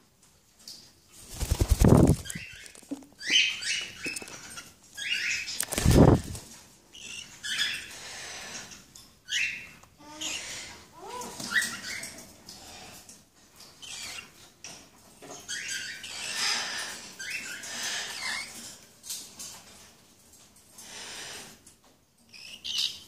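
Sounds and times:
bird wings flapping: 1.2 - 3.0, 5.6 - 6.5.

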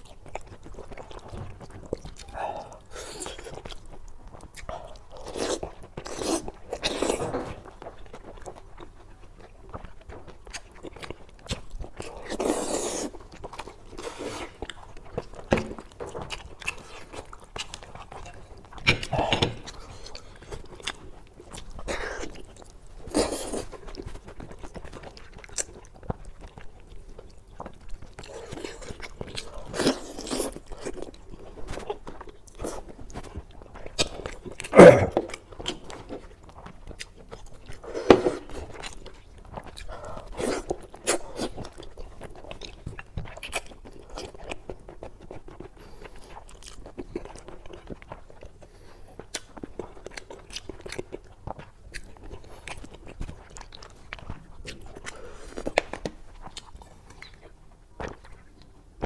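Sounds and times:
person biting and chewing: 0.1 - 8.6, 10.4 - 48.6.

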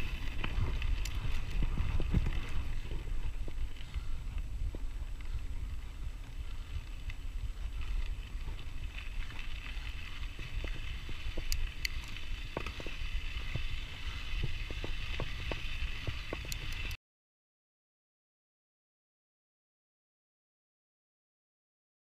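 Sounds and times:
bike clicks and rattles: 0.0 - 17.0
bike tyres rumbling on dirt: 0.0 - 17.0
wind on microphone: 0.0 - 17.0.

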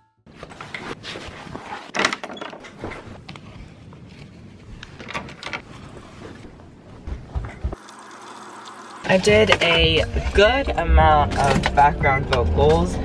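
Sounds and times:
backpack rustling: 0.3 - 2.1.

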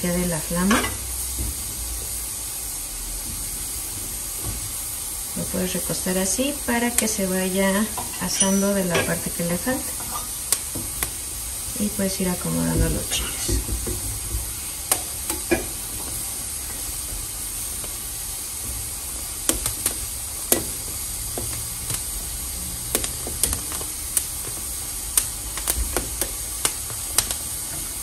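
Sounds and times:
gas burners hissing: 0.0 - 28.0
chiles charring with clicks and pops: 9.3 - 11.7, 13.2 - 28.0.

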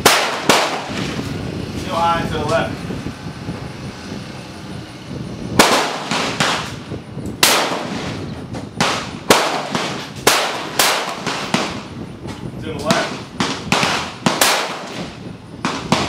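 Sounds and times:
rifle shots echoing: 0.0 - 1.2, 5.6 - 6.8, 7.4 - 8.2, 8.8 - 12.0, 12.8 - 16.0.

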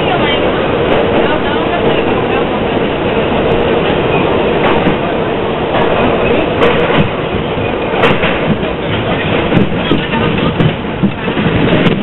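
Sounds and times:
subway wheels rumbling on rail: 0.0 - 12.0
clicks over rail joints: 5.7 - 12.0.

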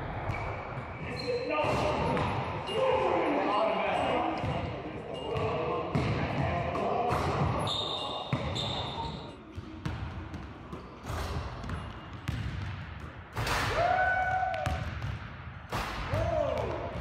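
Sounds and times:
basketballs bouncing on hardwood: 9.5 - 15.3.

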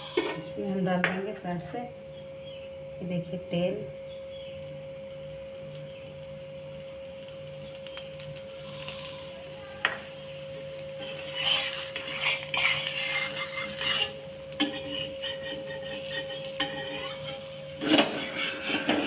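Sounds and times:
steady thin hum: 0.0 - 19.0
spatula scraping iron pan: 10.8 - 19.0
spatula tapping iron pan: 11.0 - 17.4.

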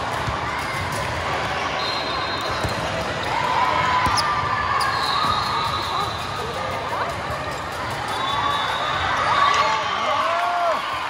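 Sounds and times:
spectators chatter: 0.0 - 11.0
sneakers squeaking on floor: 4.0 - 6.6.

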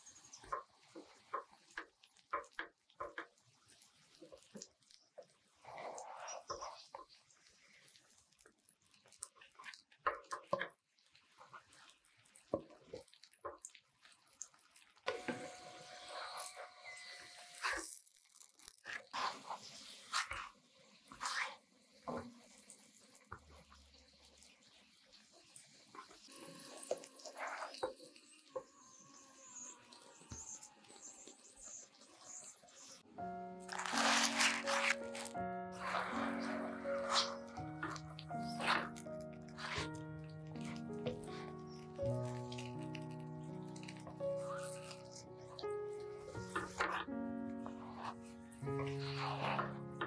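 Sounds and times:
tortillas frying in oil: 0.0 - 39.9
spatula scraping and flopping: 0.4 - 8.2, 15.1 - 22.3, 33.6 - 50.0.

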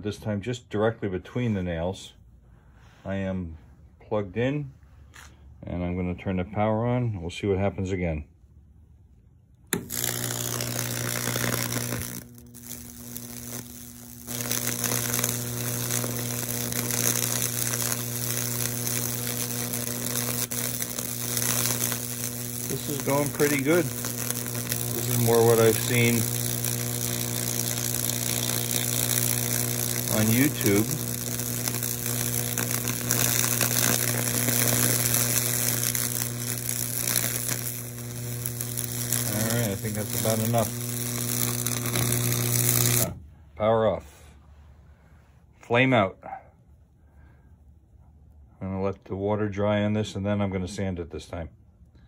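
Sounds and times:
electric arc crackling through wood: 9.7 - 43.2
transformer humming: 9.7 - 43.2.

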